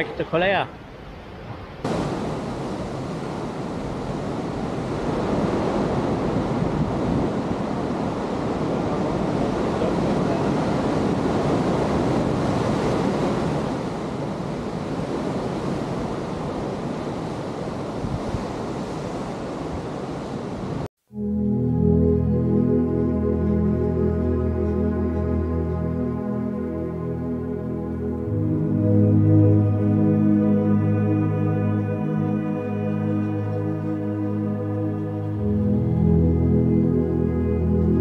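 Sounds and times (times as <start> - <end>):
sea surf washing in: 0.0 - 20.9
wind rumbling on microphone: 1.3 - 20.9.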